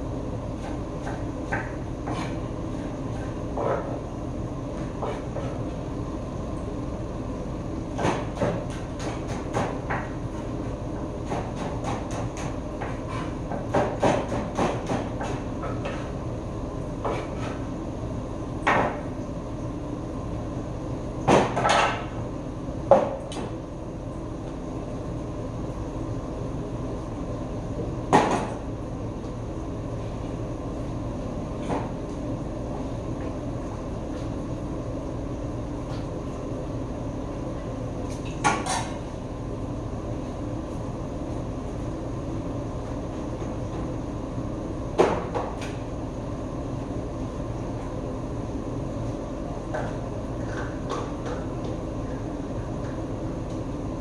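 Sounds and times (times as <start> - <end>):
steady background hum: 0.0 - 54.0
knife chopping on wooden board: 0.6 - 2.4, 8.0 - 10.1, 11.2 - 16.0.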